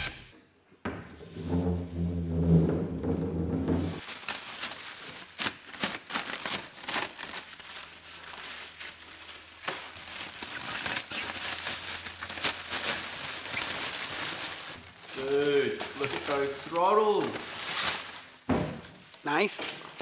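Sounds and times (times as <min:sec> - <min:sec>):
plastic wrap crinkling: 0:04.0 - 0:19.5.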